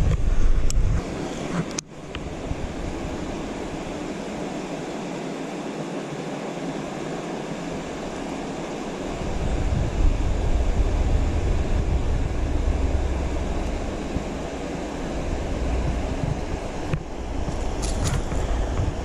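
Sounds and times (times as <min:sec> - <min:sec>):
wind buffeting microphone: 0:00.0 - 0:04.8, 0:07.8 - 0:19.0
wind rushing: 0:09.0 - 0:19.0.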